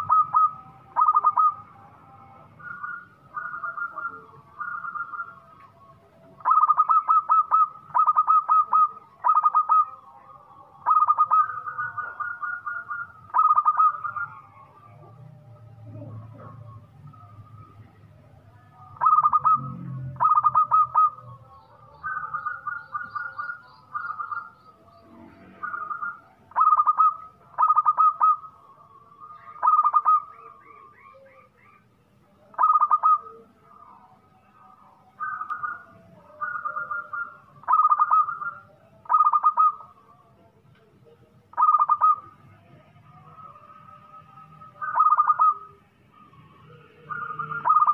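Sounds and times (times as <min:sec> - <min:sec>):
dove cooing: 0:00.0 - 0:05.5, 0:06.4 - 0:10.0, 0:10.8 - 0:17.8, 0:18.8 - 0:28.6, 0:29.2 - 0:33.8, 0:35.2 - 0:40.2, 0:41.0 - 0:47.9.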